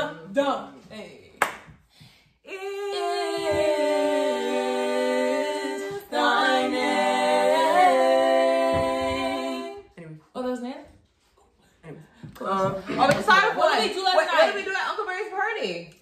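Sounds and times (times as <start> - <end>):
women singing in harmony: 2.4 - 10.0.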